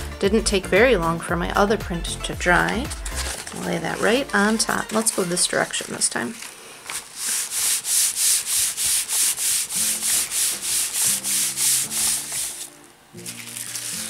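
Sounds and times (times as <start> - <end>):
hands rubbing paper on plastic bag: 3.0 - 14.0.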